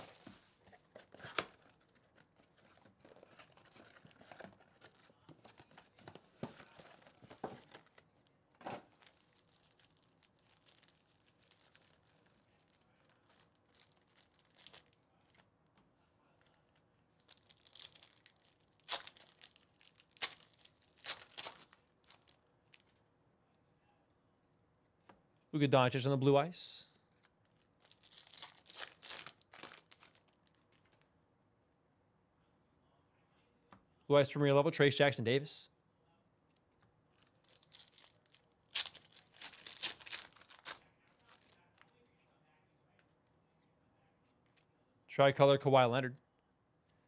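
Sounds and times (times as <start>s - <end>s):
plastic wrappers tearing and crinkling: 0.0s - 5.6s, 8.7s - 15.4s, 17.2s - 23.0s, 27.4s - 31.0s, 37.2s - 41.9s.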